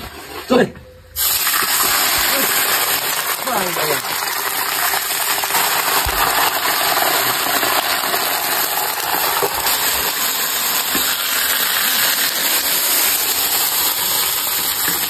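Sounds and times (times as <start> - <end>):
meat sizzling in a wok: 1.2 - 15.0.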